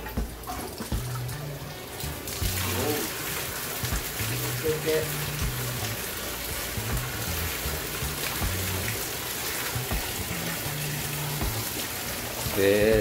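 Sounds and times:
water pouring and splashing: 0.0 - 13.0.

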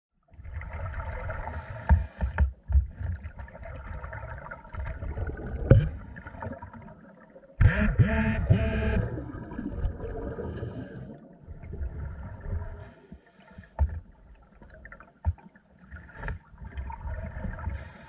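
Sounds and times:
underwater rumble: 0.3 - 7.6, 8.3 - 18.0
bubbles from diver exhaling: 4.9 - 6.8, 9.1 - 12.7.

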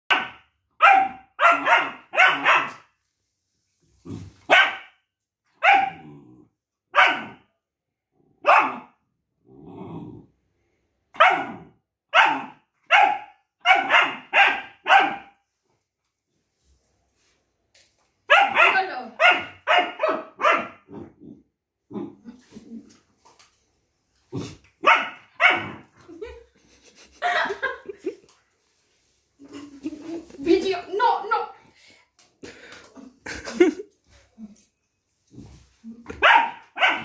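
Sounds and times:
puppy barking: 0.1 - 2.9, 4.5 - 5.0, 5.6 - 6.0, 6.9 - 7.4, 8.4 - 9.0, 11.2 - 15.4, 18.3 - 20.9, 24.8 - 25.9, 36.1 - 37.0
dog growling: 6.0 - 6.6, 9.4 - 10.4.

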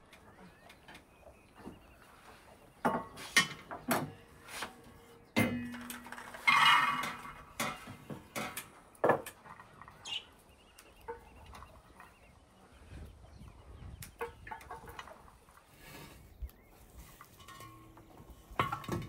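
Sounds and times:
metal pans clanking on table: 5.4 - 9.3, 17.3 - 19.0
rattling scrape: 5.8 - 8.0.

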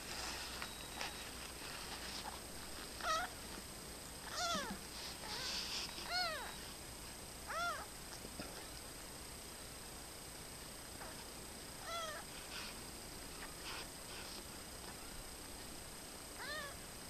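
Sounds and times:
kitten mewing: 4.2 - 6.6, 11.8 - 12.3.

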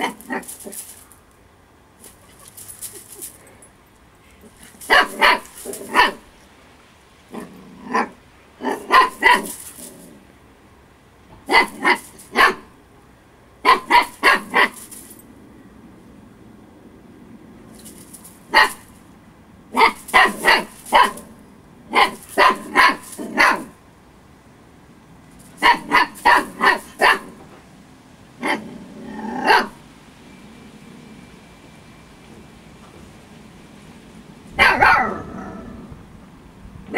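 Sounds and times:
puppy barking: 0.0 - 0.9, 4.5 - 6.3, 7.4 - 9.8, 11.5 - 12.7, 13.6 - 15.1, 18.5 - 18.9, 19.7 - 23.8, 25.6 - 27.4, 28.4 - 29.8, 34.6 - 35.8.

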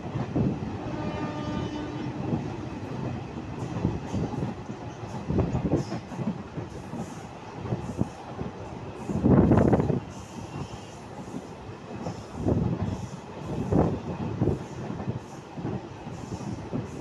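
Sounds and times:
train wheels rumbling on track: 0.0 - 17.0
clacks over rail joints: 2.1 - 10.0.

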